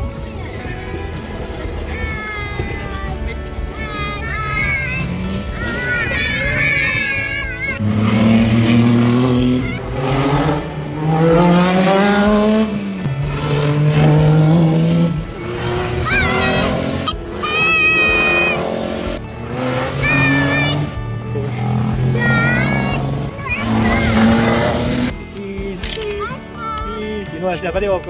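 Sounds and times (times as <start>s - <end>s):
race cars accelerating past: 4.5s - 6.0s, 6.6s - 25.2s.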